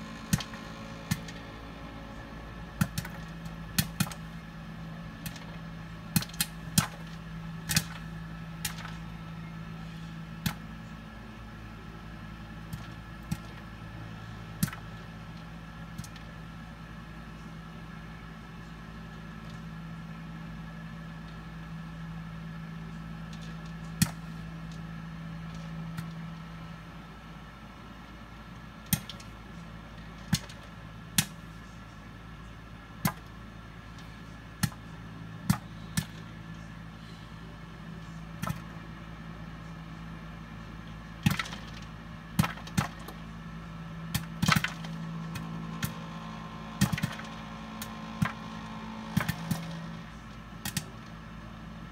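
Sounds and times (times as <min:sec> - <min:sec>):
cooker humming: 0:00.0 - 0:51.9
popcorn kernels popping: 0:02.7 - 0:04.3, 0:05.1 - 0:09.0, 0:28.8 - 0:29.4, 0:30.1 - 0:31.5, 0:41.2 - 0:43.3, 0:44.1 - 0:49.9, 0:50.6 - 0:51.2.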